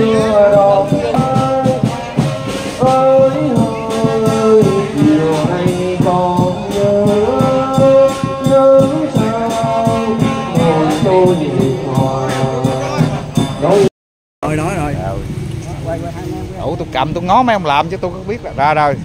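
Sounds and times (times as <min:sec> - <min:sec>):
brass slow melody: 0:00.0 - 0:13.9
steady drum beat: 0:00.0 - 0:18.1.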